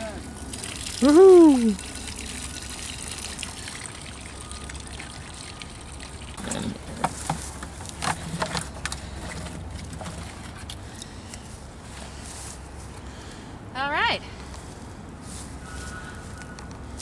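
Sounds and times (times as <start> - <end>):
water splashing in a plastic bucket: 0.4 - 6.4.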